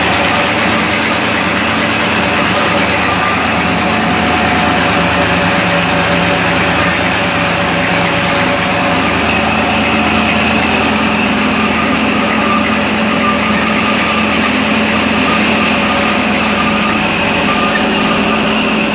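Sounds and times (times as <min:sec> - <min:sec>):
ginning machine pulleys turning: 0:00.0 - 0:18.9
tractor engine running: 0:00.0 - 0:18.9.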